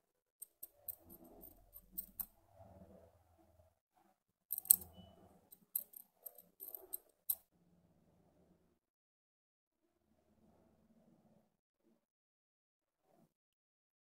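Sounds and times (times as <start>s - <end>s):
metal tool scraping metal: 0.4s - 2.3s, 4.5s - 7.4s.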